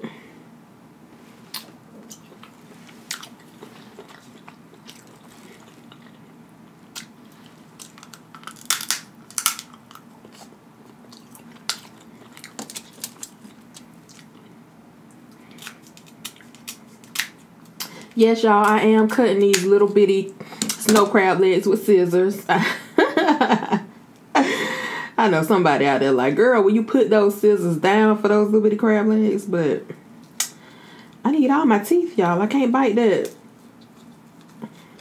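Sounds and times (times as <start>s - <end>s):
chewing: 1.5s - 8.8s, 9.4s - 18.2s
crab shell cracking: 6.9s - 14.4s, 15.4s - 18.8s.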